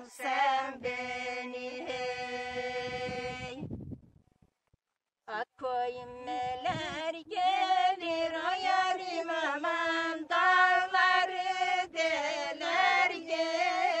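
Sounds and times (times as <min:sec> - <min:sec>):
women singing unaccompanied: 0:00.0 - 0:03.7, 0:05.3 - 0:14.0.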